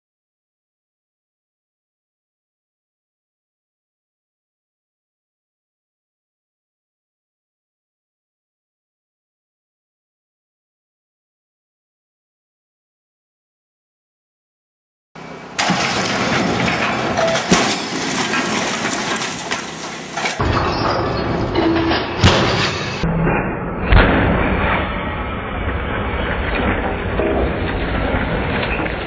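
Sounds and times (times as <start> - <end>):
sharp bangs: 15.2 - 29.0
crashing and clattering: 15.6 - 23.0, 23.9 - 29.0.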